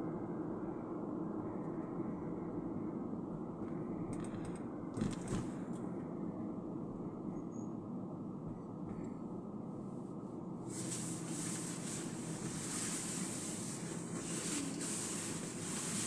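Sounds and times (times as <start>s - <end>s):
car road and engine noise: 0.0s - 16.0s
clatter of clicks: 4.1s - 5.8s.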